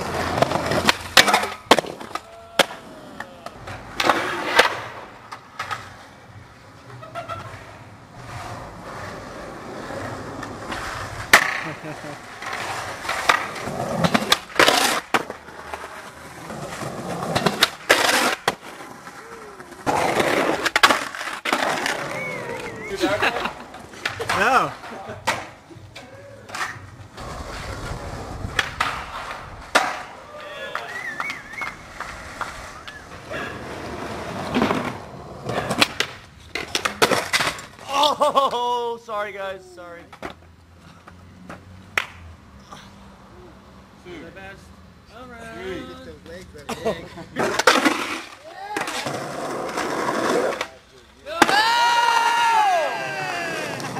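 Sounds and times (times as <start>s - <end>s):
skateboard popping and landing clacks: 0.0s - 6.0s, 10.0s - 22.8s, 23.4s - 37.9s, 41.0s - 42.2s, 47.4s - 52.3s
skateboard wheels rolling on concrete: 0.0s - 53.9s
person shouting: 51.3s - 53.9s.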